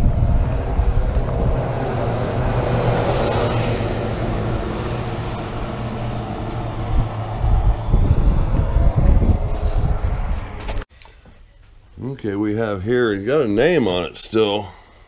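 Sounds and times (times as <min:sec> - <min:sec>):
low engine drone: 0:00.0 - 0:10.8
vehicle passing: 0:00.0 - 0:10.8.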